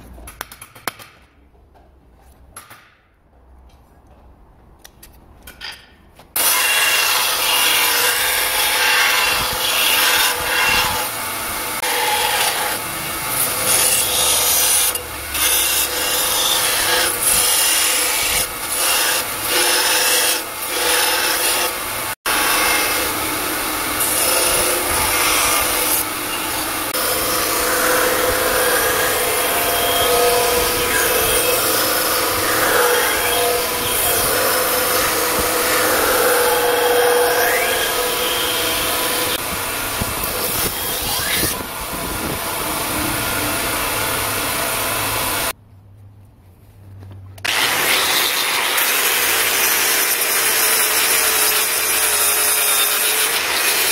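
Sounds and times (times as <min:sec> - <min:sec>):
belt grinder grinding steel: 0:06.4 - 0:45.5.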